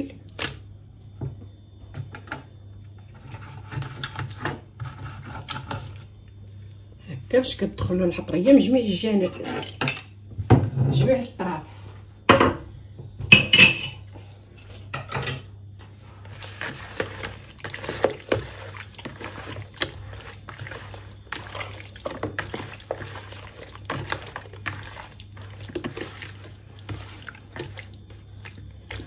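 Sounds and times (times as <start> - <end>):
hands squelching raw chicken: 16.4 - 29.0.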